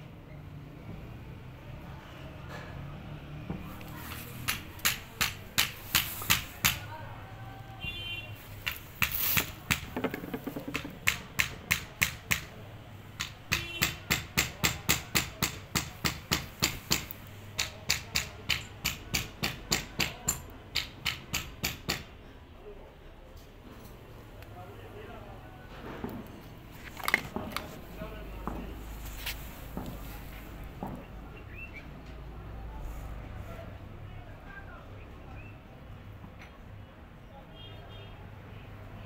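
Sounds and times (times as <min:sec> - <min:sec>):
sharp knocks: 0:08.6 - 0:12.6, 0:13.2 - 0:22.1.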